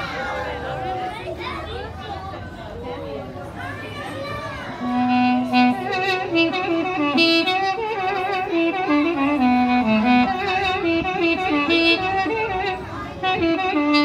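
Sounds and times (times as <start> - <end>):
wind instrument solo melody: 4.8 - 14.0.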